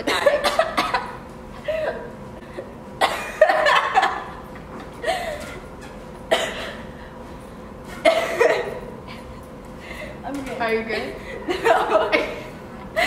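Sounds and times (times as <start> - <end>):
coughing: 0.0 - 2.1, 3.0 - 4.2, 6.3 - 6.9, 7.9 - 9.3.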